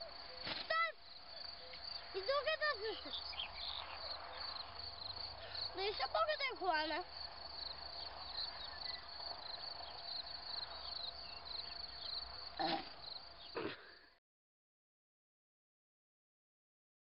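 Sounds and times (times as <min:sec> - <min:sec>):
crickets chirping: 0:00.0 - 0:14.1.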